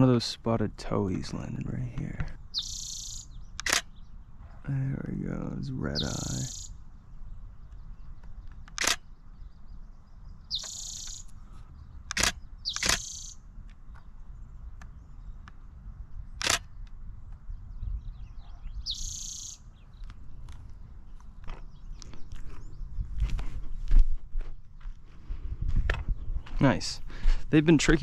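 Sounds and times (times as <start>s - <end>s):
bird buzzy calls: 2.4s - 4.9s, 5.5s - 6.9s, 10.3s - 13.5s, 18.2s - 20.0s
camera shutter clicks: 3.6s - 3.9s, 8.7s - 9.0s, 12.1s - 13.2s, 16.4s - 16.7s.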